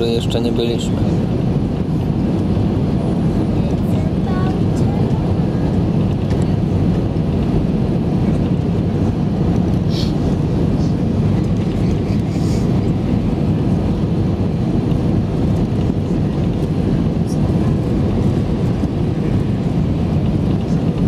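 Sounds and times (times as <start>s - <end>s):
jet engine and airflow in cabin: 0.0s - 21.0s.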